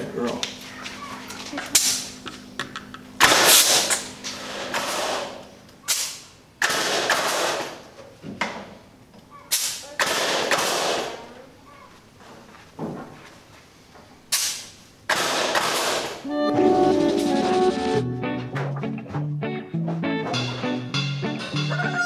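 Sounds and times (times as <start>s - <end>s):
nail gun shots: 3.2s - 7.9s, 9.5s - 11.3s, 14.3s - 16.2s.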